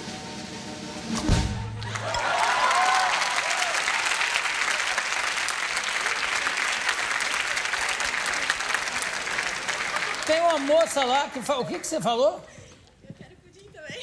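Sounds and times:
studio audience applauding: 0:01.8 - 0:12.4.

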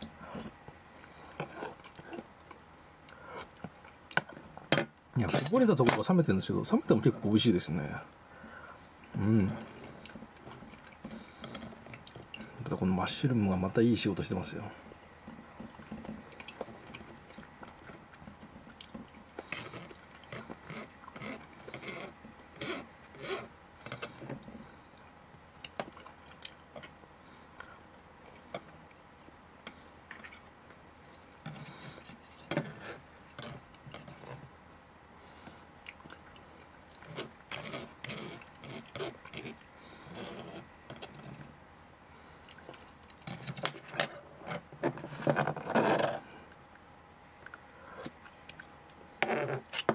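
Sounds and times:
chopsticks clicking and scraping: 0:18.8 - 0:24.2
chewing: 0:35.8 - 0:37.1.

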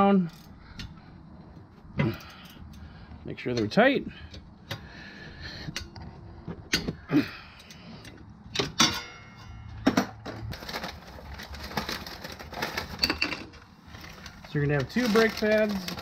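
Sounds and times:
metal hand tools clanking: 0:08.5 - 0:09.7.

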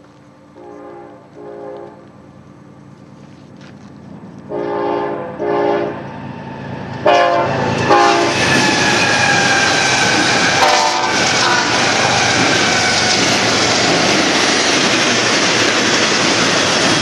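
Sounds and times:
locomotive engines and wheels rumbling: 0:00.0 - 0:17.0
train air horn blasts: 0:00.6 - 0:02.0, 0:04.5 - 0:06.0, 0:07.0 - 0:12.4.

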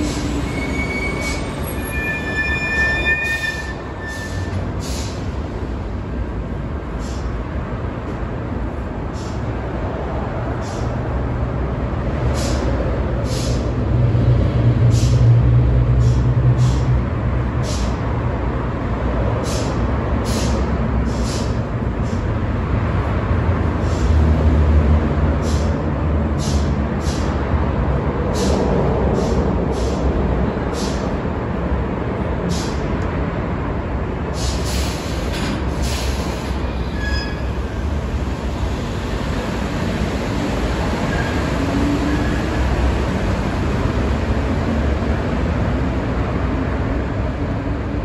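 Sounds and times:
short air hisses: 0:04.2 - 0:05.2, 0:07.0 - 0:07.3, 0:13.2 - 0:13.6, 0:19.4 - 0:21.6, 0:29.2 - 0:30.0, 0:30.8 - 0:31.0, 0:34.4 - 0:36.6.

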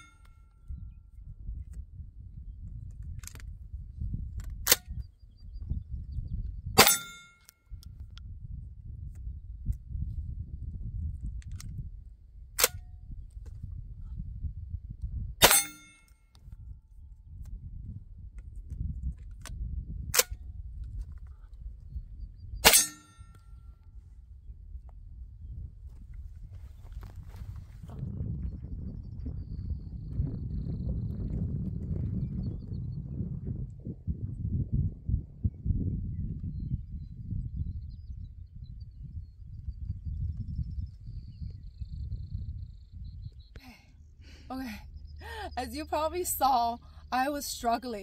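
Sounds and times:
wind rumbling on microphone: 0:00.0 - 0:48.0
shotgun shot: 0:06.8 - 0:07.2
sharp metallic clack of shotgun: 0:06.8 - 0:07.6, 0:12.6 - 0:12.8, 0:15.4 - 0:16.2, 0:22.6 - 0:23.4.

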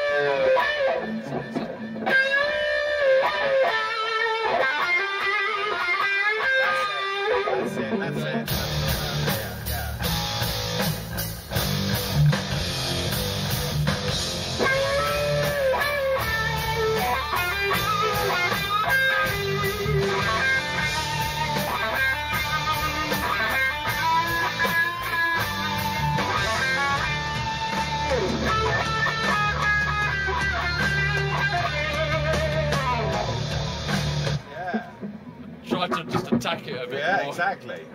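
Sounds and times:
electric guitar playing heavy rock: 0:00.0 - 0:34.5
bass and drum backing: 0:08.1 - 0:36.9.

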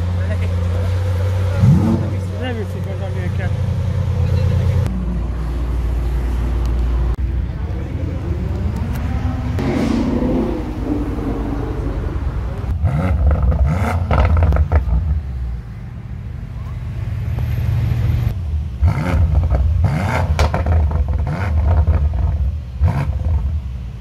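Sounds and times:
car engine revving: 0:00.0 - 0:15.6, 0:17.1 - 0:23.8
exhaust cracks: 0:08.1 - 0:15.4, 0:18.8 - 0:23.6.

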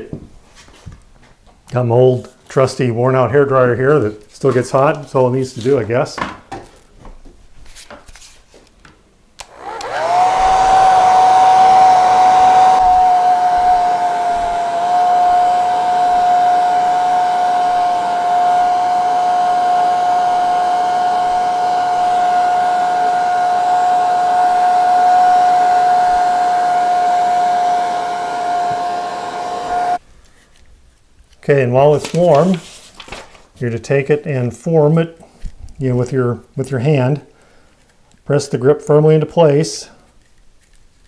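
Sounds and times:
hair dryer motor whine: 0:09.4 - 0:30.0.

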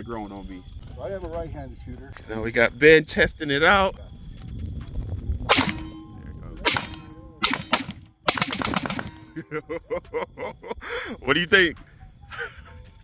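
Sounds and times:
rifle gunshots: 0:05.5 - 0:09.4.

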